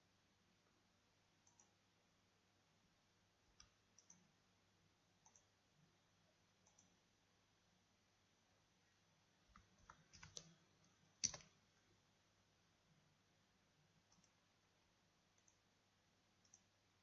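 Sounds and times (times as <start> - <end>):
computer mouse and keyboard clicks: 1.4 - 1.8, 3.6 - 4.3, 5.2 - 5.5, 6.6 - 7.0, 9.5 - 10.6, 11.2 - 11.6, 16.4 - 16.7.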